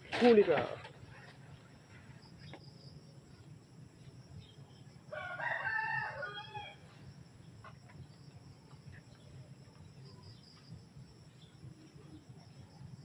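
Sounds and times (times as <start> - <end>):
rooster crowing: 5.1 - 6.9.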